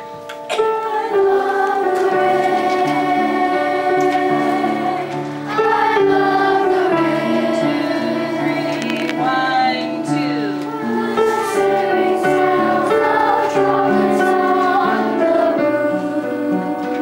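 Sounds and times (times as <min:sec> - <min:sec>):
children's choir singing: 0:00.0 - 0:17.0
upright piano: 0:00.0 - 0:17.0.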